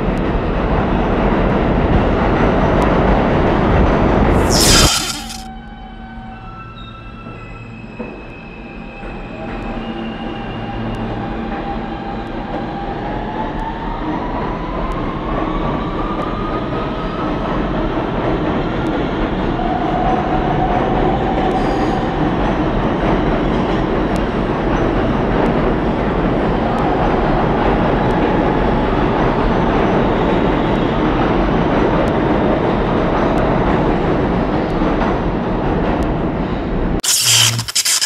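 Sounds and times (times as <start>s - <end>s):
train motors whining: 4.4s - 5.5s.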